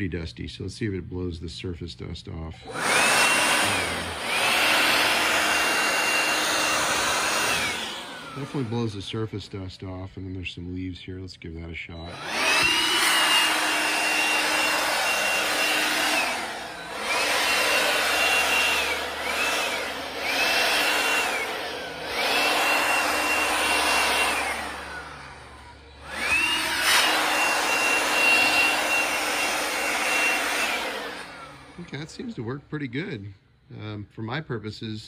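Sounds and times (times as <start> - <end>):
cordless blower whining: 2.6 - 10.0, 11.9 - 32.4.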